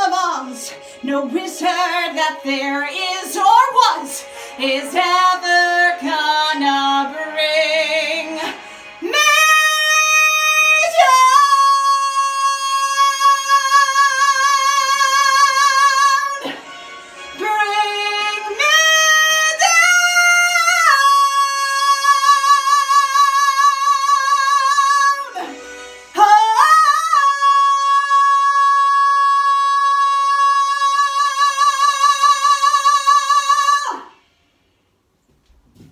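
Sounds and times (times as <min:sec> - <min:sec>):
woman singing unaccompanied: 0:00.0 - 0:16.6, 0:17.4 - 0:34.1.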